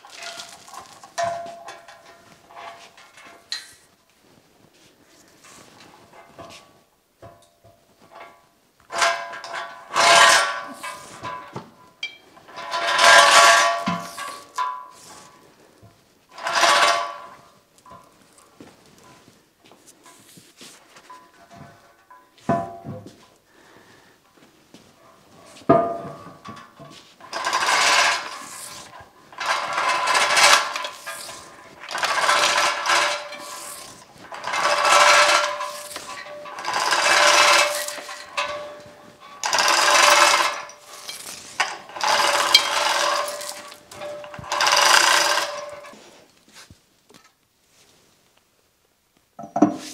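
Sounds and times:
chain rattling: 0:26.5 - 0:46.0.

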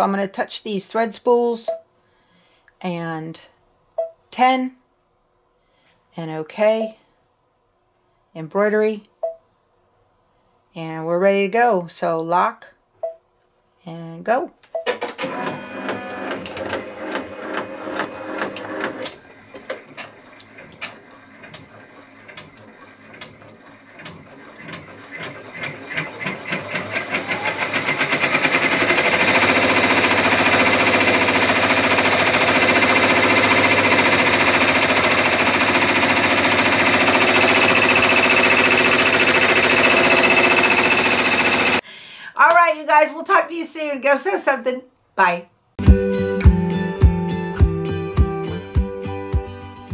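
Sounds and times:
embroidery machine stitching: 0:14.9 - 0:41.8.

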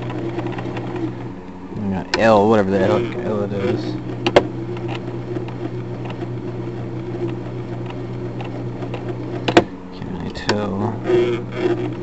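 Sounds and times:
sewing machine motor humming: 0:00.0 - 0:12.0.

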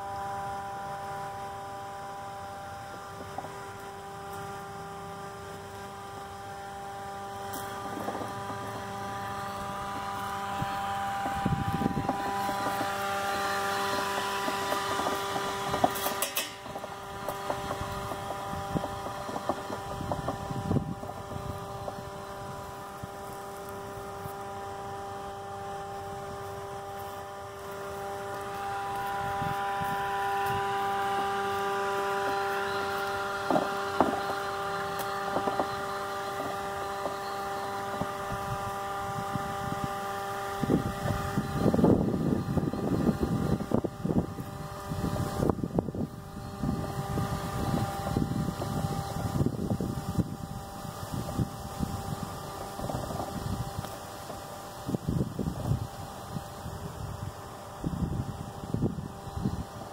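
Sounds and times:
robotic lawn mower motor whine: 0:00.0 - 0:59.9
short crackles and clicks: 0:25.5 - 0:38.7.

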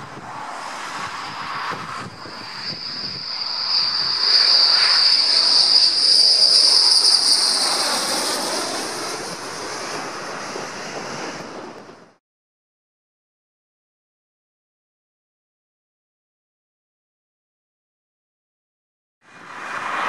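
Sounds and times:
jet engines whine and roar: 0:00.0 - 0:12.2, 0:19.2 - 0:20.0.

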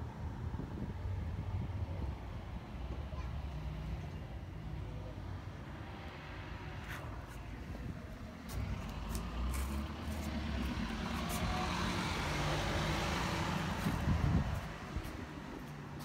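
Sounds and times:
vehicle driving past: 0:08.6 - 0:15.6.

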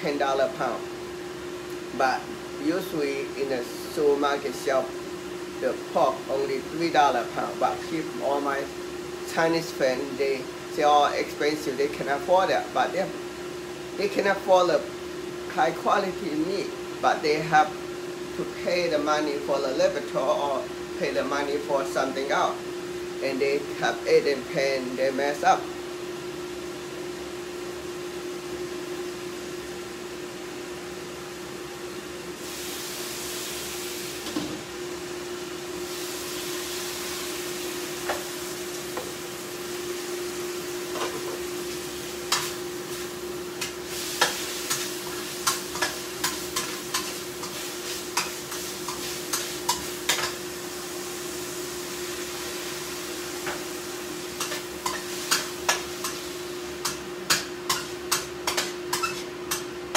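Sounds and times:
steady hum: 0:00.0 - 0:59.9
food sizzling in a pan: 0:32.1 - 0:59.9
spatula scraping a pan: 0:42.3 - 0:50.4, 0:54.3 - 0:59.7.

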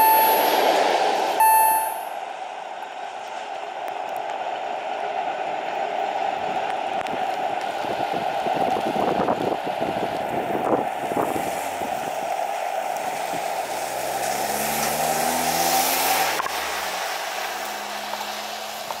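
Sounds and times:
train low hum: 0:00.0 - 0:14.0
heavy rain hiss: 0:07.1 - 0:19.0.

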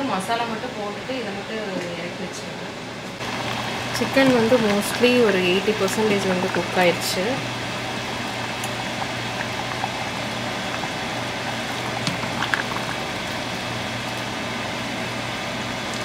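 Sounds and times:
gravy bubbling in a pot: 0:03.2 - 0:16.0.

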